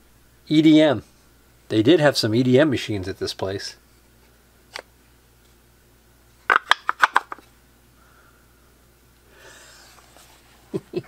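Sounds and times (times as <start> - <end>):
faint handling rustle: 9.8 - 10.8.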